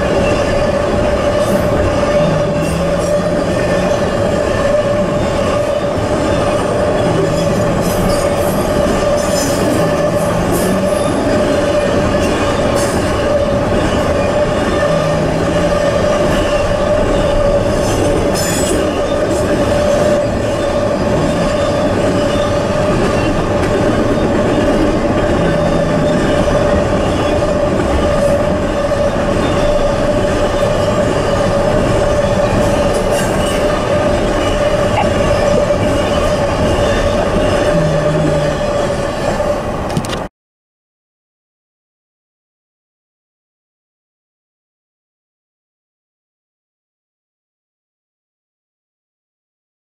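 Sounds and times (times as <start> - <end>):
train wheels on rails: 0.0 - 40.3
high wheel squeal: 0.2 - 39.7.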